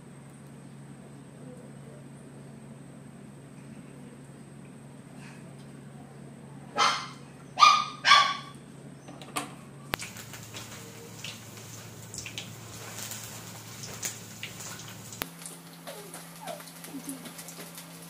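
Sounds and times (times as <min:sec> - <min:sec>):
dog barking: 0:06.7 - 0:08.6
hot oil sizzling and crackling: 0:09.9 - 0:18.0.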